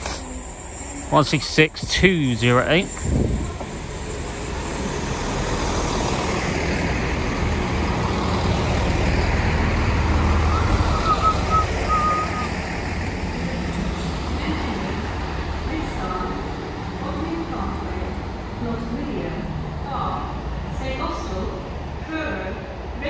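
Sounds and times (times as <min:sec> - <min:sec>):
high train squeals: 0:00.0 - 0:07.2, 0:10.2 - 0:15.2
train wheels on rail: 0:00.0 - 0:22.0
diesel engines rumbling: 0:00.0 - 0:23.0.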